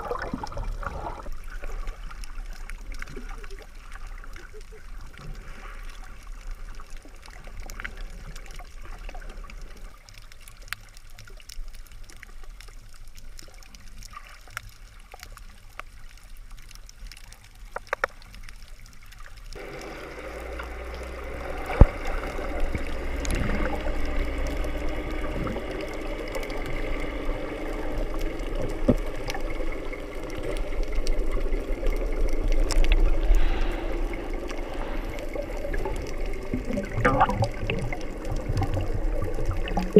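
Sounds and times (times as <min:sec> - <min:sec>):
underwater drone: 0:00.0 - 0:39.9
water sloshing and trickling: 0:00.0 - 0:39.9.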